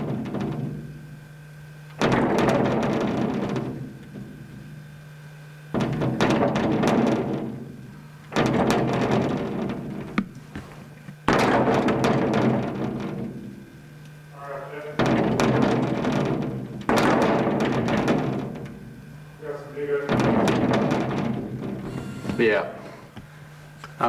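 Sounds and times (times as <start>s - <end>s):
window glass rattling: 0.0s - 1.0s, 2.0s - 4.6s, 5.7s - 10.3s, 11.2s - 13.6s, 15.0s - 19.1s, 19.9s - 22.6s.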